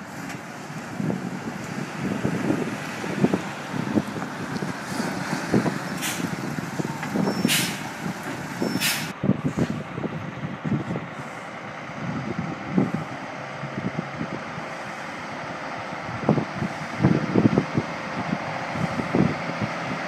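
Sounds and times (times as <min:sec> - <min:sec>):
diesel truck engine running: 0:00.0 - 0:20.0
distant truck engine rumble: 0:00.0 - 0:20.0
truck air brake hisses: 0:05.9 - 0:06.4, 0:07.3 - 0:08.0, 0:08.6 - 0:09.8.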